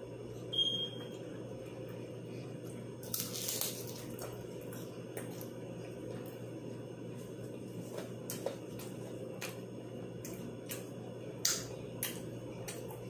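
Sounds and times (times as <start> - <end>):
crisp crunch of a bite: 3.0 - 5.5.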